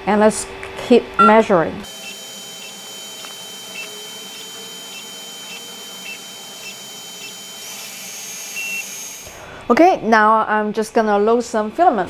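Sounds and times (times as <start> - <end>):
stepper motor chirps: 1.2 - 9.4
printer high whine: 1.9 - 9.2.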